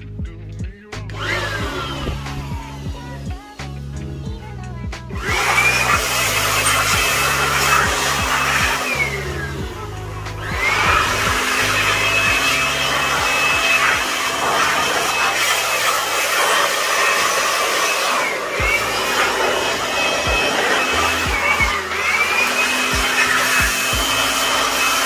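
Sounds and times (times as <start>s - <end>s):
electric air blower whine: 0.9s - 25.0s.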